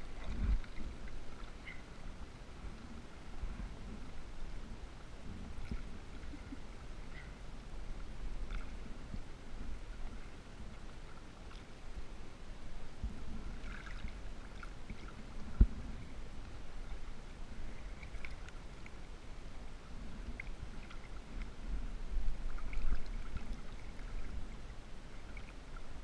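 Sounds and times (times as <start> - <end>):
low rumbling on microphone: 0.0 - 26.0
water lapping and sloshing: 0.0 - 26.0
small splashes: 13.6 - 15.2.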